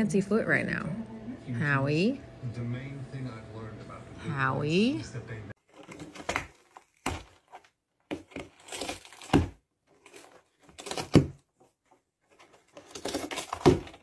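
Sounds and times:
cardboard box rustling and scraping: 5.6 - 14.0.

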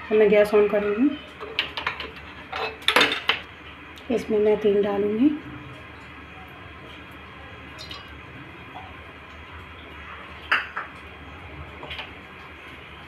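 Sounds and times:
metal kitchenware clinking: 1.4 - 3.4.

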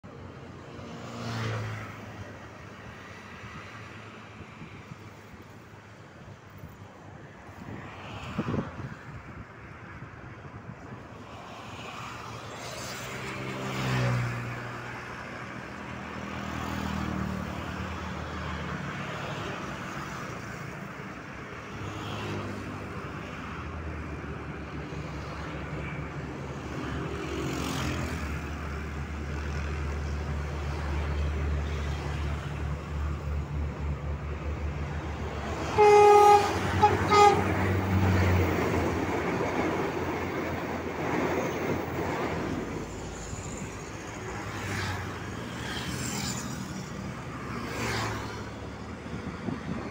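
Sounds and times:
train engine drone: 28.2 - 47.5
train horn blasts: 35.6 - 37.8.

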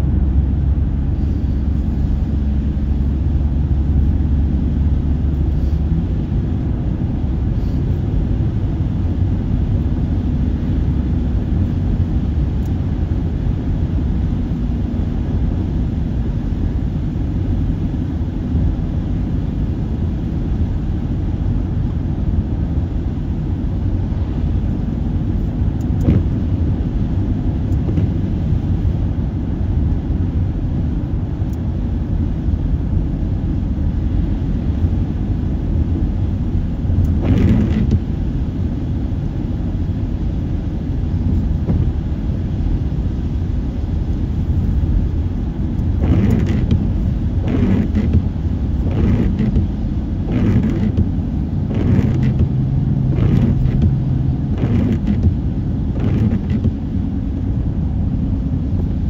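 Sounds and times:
road and tyre rumble: 0.0 - 59.0
passing vehicle whooshes: 45.6 - 59.0.

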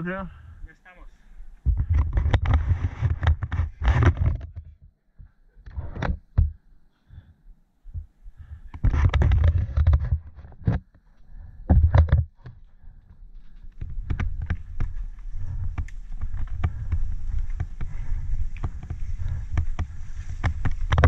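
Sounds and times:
bike clattering over bumps: 13.7 - 21.0
wind buffeting microphone: 13.7 - 21.0.

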